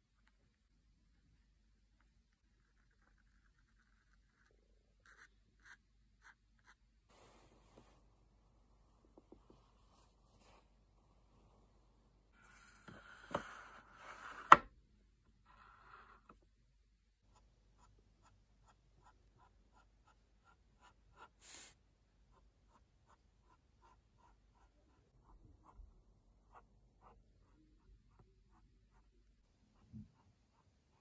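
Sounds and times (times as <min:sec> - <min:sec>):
marker scratching strokes: 0:05.0 - 0:06.8, 0:17.3 - 0:25.8.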